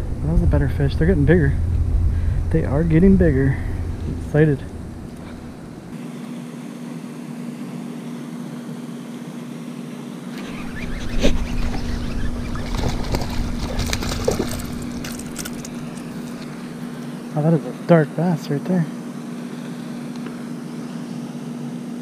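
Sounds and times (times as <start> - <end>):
sharp water splashes: 10.4 - 16.8
fish splashing and thrashing: 10.4 - 17.0.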